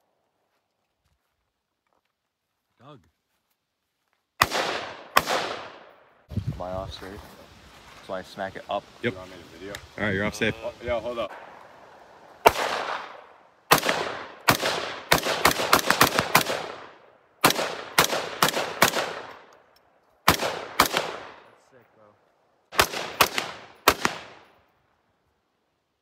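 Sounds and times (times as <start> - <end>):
rifle shots with echo: 4.4 - 6.1, 12.4 - 19.5, 20.2 - 21.6, 22.7 - 24.6.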